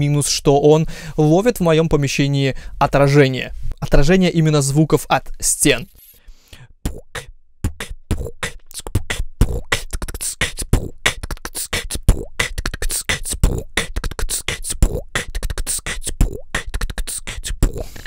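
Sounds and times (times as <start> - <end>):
person beatboxing: 6.6 - 18.0.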